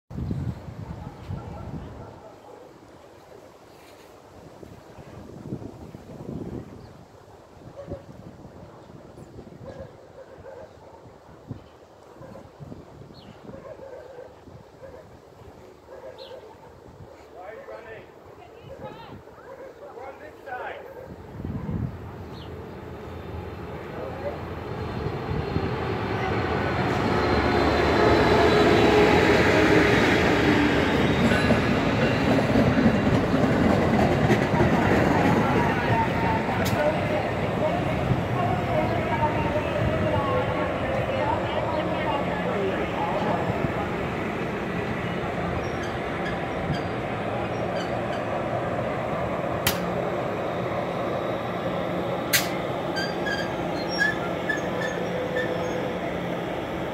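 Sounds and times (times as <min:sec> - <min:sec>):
train wheels rolling on rails: 0:24.5 - 0:56.9
sharp clicks: 0:49.6 - 0:49.9, 0:52.3 - 0:52.6
faint short squeaks: 0:52.9 - 0:55.8.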